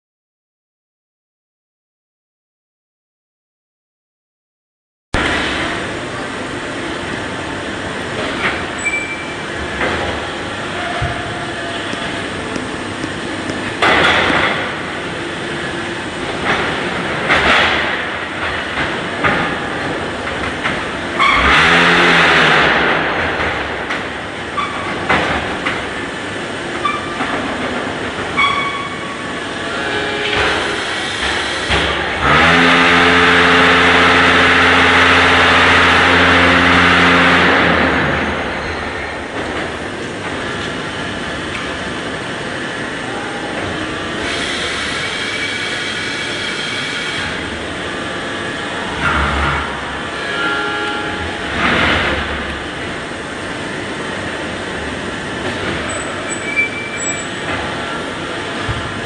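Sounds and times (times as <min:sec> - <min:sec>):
steady machine noise: 0:05.2 - 0:59.0
vibrators humming: 0:05.2 - 0:59.0
machine clanks and knocks: 0:08.1 - 0:15.0, 0:16.2 - 0:26.0, 0:26.7 - 0:29.1, 0:48.9 - 0:53.1.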